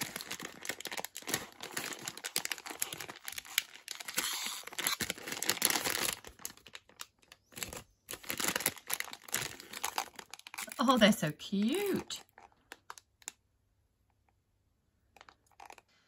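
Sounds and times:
plastic packet crinkling and tearing: 0.0s - 13.4s, 15.1s - 16.0s.

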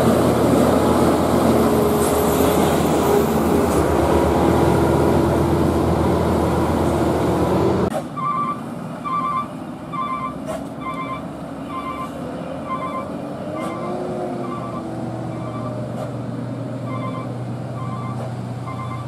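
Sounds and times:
box truck passing close: 0.0s - 19.0s
quiet traffic: 0.0s - 19.0s
electronic reversing beep: 8.2s - 15.8s, 16.9s - 19.0s.

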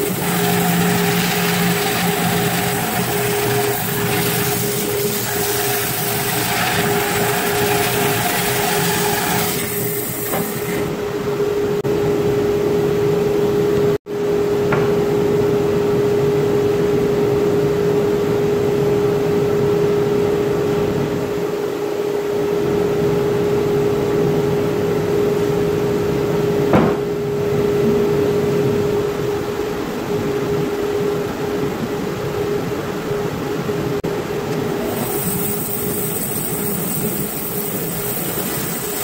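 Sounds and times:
bandsaw running: 0.0s - 10.9s, 34.8s - 39.0s
single knock: 26.7s - 27.0s.

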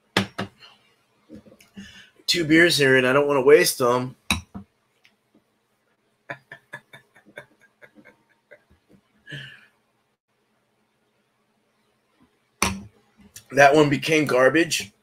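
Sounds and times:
breath: 1.8s - 2.2s, 9.3s - 9.8s
man laughing softly: 6.3s - 9.6s.

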